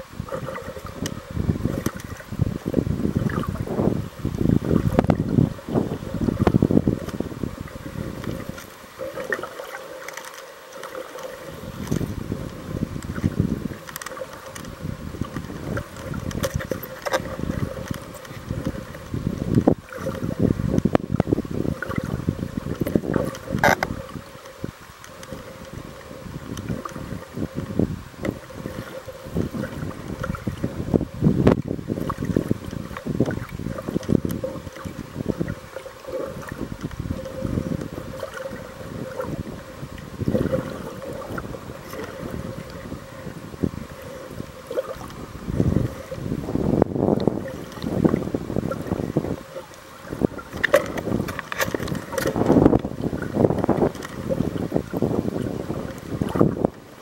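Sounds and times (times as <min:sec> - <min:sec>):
faint steady hum: 0:00.0 - 0:57.0
muffled underwater water rushing: 0:00.0 - 0:57.0.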